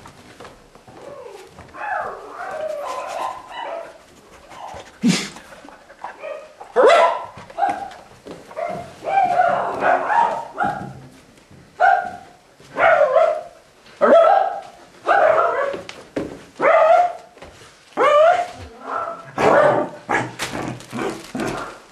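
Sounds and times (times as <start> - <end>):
dog barking: 1.8 - 4.0, 6.2 - 8.0, 8.6 - 11.0, 11.8 - 15.9, 16.6 - 17.2, 18.0 - 20.4.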